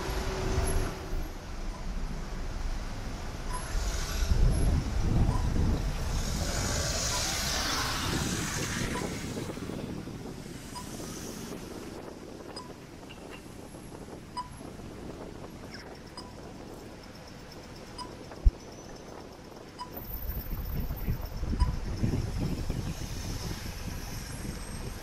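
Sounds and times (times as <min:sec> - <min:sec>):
hiss: 0:03.6 - 0:04.6.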